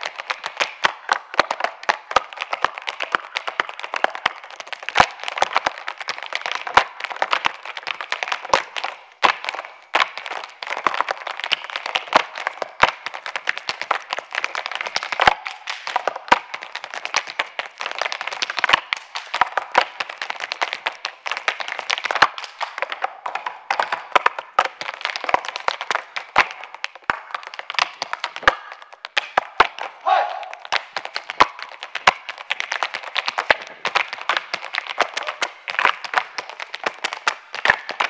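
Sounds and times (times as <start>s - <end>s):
audience applauding: 0.0s - 8.5s, 30.0s - 38.0s.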